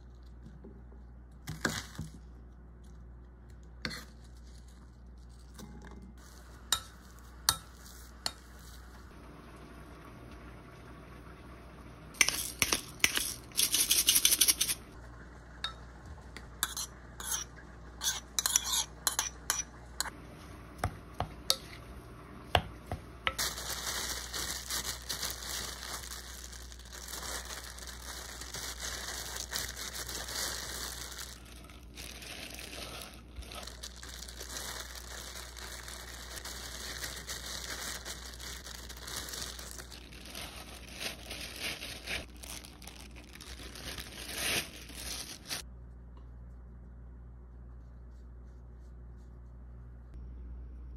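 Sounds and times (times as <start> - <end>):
plastic gloves crinkling: 0.0 - 9.1, 12.2 - 15.0, 23.3 - 45.7
spoon scraping glass bowl: 12.2 - 14.8, 16.6 - 19.7.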